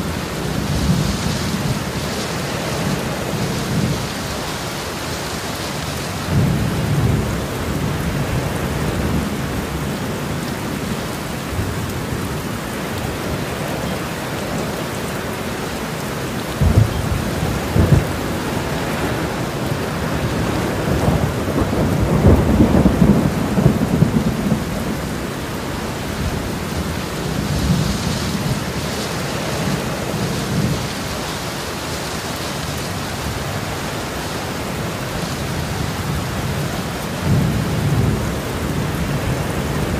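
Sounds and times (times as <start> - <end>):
heavy rain: 0.0 - 39.9
thunder rumbling: 16.4 - 31.5.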